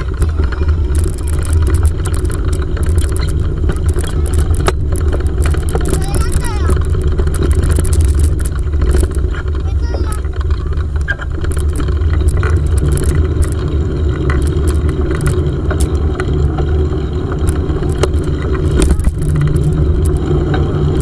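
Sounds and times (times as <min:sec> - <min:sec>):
bike clicks and rattles: 0:00.0 - 0:21.0
wind and road noise: 0:00.0 - 0:21.0.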